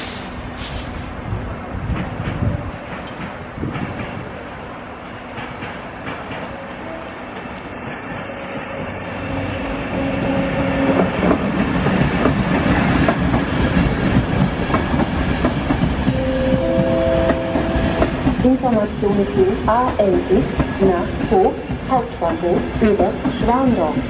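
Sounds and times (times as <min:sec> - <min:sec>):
diesel locomotive passing: 0:00.0 - 0:24.0
train wheels clattering over rail joints: 0:01.8 - 0:04.3, 0:05.2 - 0:06.5, 0:10.2 - 0:16.1.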